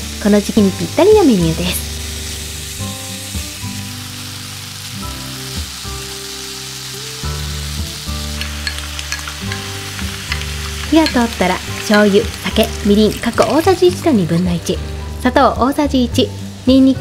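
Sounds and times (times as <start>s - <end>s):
food sizzling in a frying pan: 0.0s - 17.0s
soft background music: 0.0s - 17.0s
chopsticks stirring food: 8.3s - 13.8s.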